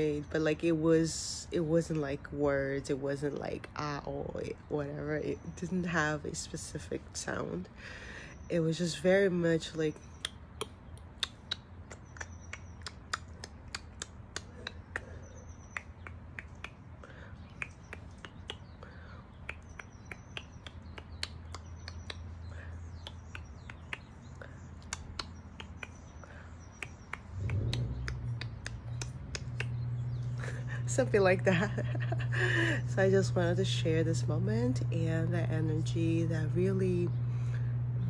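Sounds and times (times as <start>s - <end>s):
person making mouth clicks: 10.2s - 22.3s, 24.8s - 26.1s, 26.8s - 29.8s
low hum: 12.7s - 38.0s.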